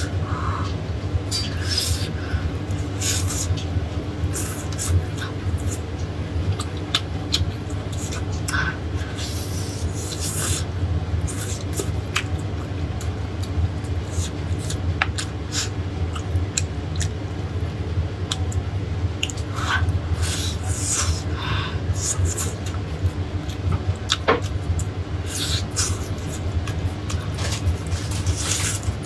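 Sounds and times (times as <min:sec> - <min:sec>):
steady low hum: 0:00.0 - 0:29.0
tearing and chewing chicken: 0:11.3 - 0:21.4, 0:22.0 - 0:29.0.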